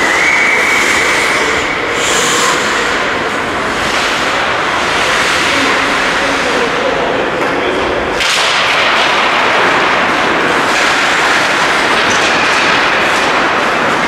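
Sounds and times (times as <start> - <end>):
skates scraping on ice: 0.0 - 7.6, 8.2 - 14.0
stick or puck hit: 0.0 - 14.0.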